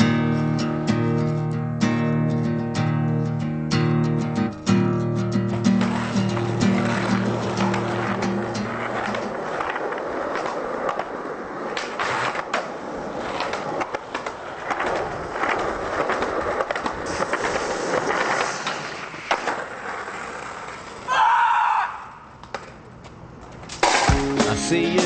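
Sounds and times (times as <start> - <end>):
skateboard wheels rolling on concrete: 0.0 - 25.0
skateboard clacks: 4.5 - 21.1, 22.3 - 25.0.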